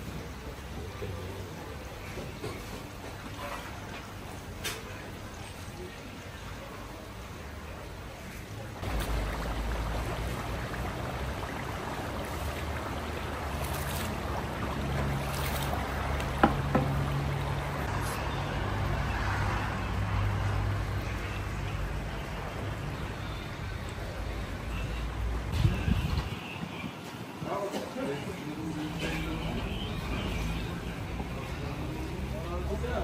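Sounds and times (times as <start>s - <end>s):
broth bubbling: 8.8s - 25.0s.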